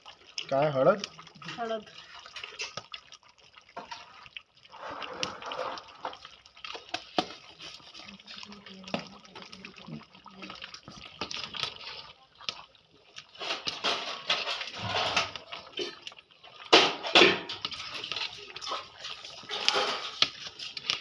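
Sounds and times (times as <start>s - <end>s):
spoon scraping metal pot: 13.4s - 16.0s, 17.1s - 21.0s.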